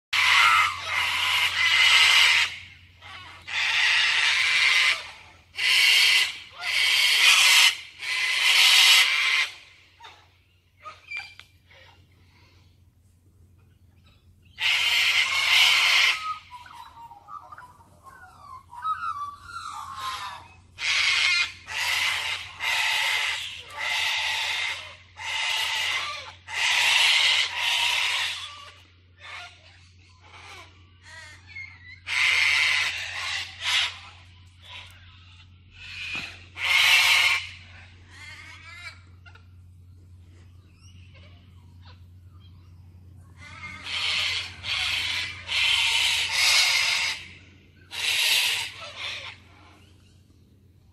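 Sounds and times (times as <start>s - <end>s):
cockatoos screeching: 0.2s - 10.2s, 14.5s - 35.2s, 35.8s - 39.5s, 43.2s - 49.9s
cockatoos chirping and whistling: 10.8s - 12.6s, 13.6s - 50.2s.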